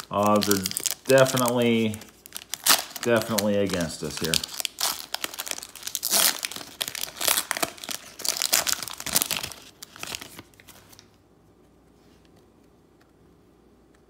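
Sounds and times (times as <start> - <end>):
cellophane wrapper tearing and crinkling: 0.0 - 11.1.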